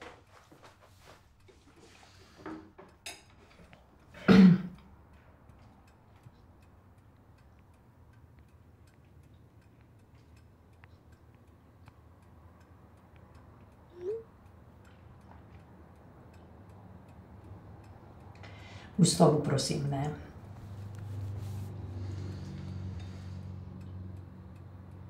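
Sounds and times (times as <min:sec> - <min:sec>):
clock ticking: 0:04.7 - 0:20.6.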